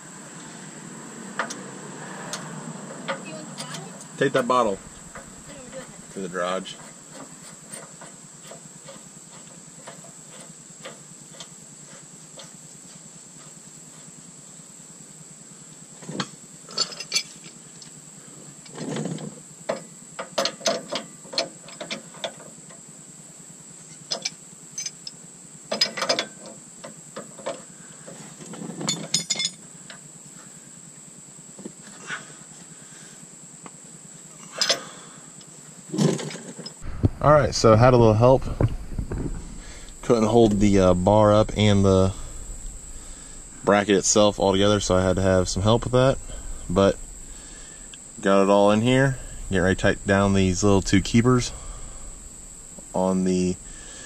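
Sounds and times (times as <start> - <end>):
metal tools clinking: 28.9 - 29.6.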